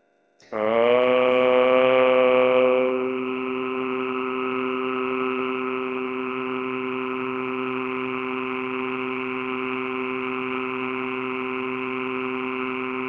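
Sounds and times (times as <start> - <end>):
low droning tones: 0.4 - 13.0.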